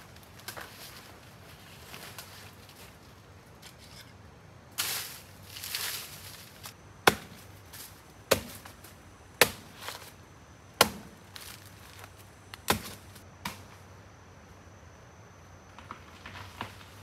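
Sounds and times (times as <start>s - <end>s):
blade chopping wood: 7.0s - 7.4s, 9.4s - 9.9s, 10.8s - 11.6s, 12.6s - 13.6s.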